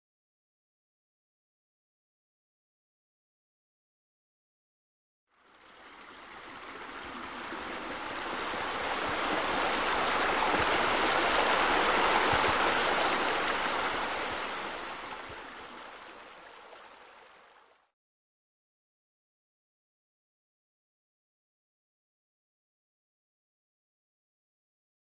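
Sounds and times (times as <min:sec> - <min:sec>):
waterfall splashing into pool: 0:05.6 - 0:17.9.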